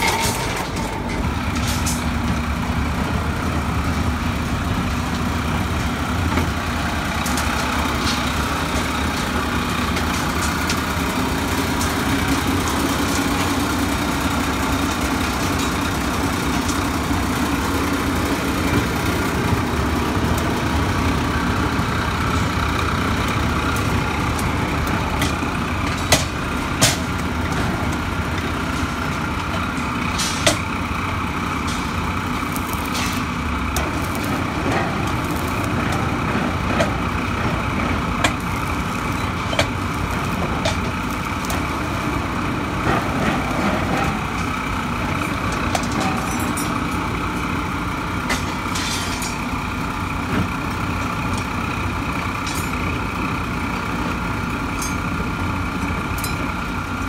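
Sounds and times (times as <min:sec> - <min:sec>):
metallic clanks of steel rebar: 0:00.0 - 0:02.5, 0:23.2 - 0:49.7, 0:52.2 - 0:53.1, 0:54.6 - 0:56.6
construction machinery droning: 0:00.0 - 0:57.0.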